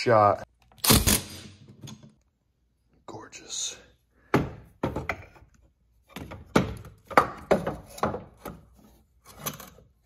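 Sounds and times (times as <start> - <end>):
metal knocks and clunks: 4.2 - 5.5, 6.1 - 8.8.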